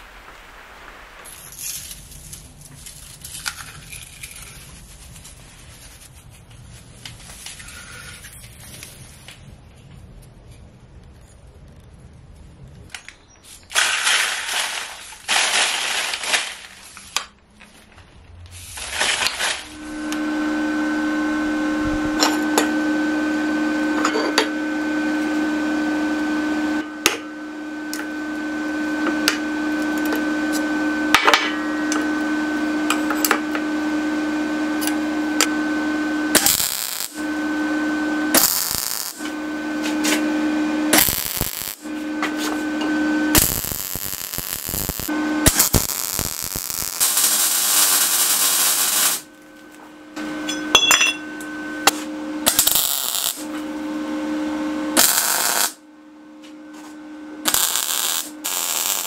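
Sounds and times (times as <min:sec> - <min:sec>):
welding crackling: 0:00.0 - 0:05.6, 0:11.0 - 0:17.3, 0:18.5 - 0:20.2, 0:36.2 - 0:37.4, 0:38.3 - 0:40.3, 0:40.9 - 0:49.8, 0:52.0 - 0:53.6, 0:55.0 - 0:55.8, 0:57.4 - 0:59.0
electrical hum: 0:11.3 - 0:59.0.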